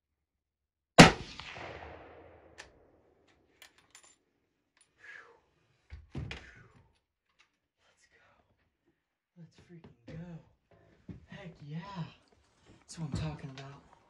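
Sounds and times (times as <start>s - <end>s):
gunshot: 1.0s - 2.6s.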